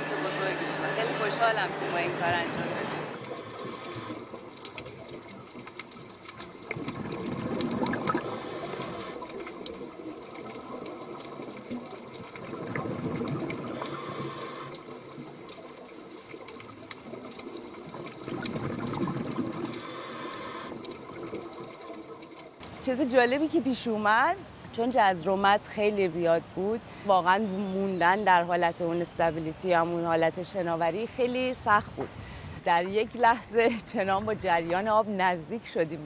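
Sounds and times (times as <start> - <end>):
regulator hiss: 0.0 - 4.2, 8.2 - 9.2, 13.7 - 14.8, 19.7 - 20.8
gurgling exhaled bubbles: 3.2 - 22.6.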